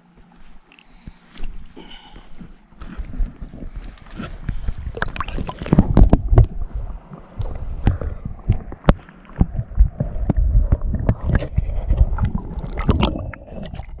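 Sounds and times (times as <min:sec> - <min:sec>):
water sloshing and gurgling: 0:00.9 - 0:14.0
low rumble: 0:02.9 - 0:14.0
camera knocking in water: 0:07.4 - 0:13.2.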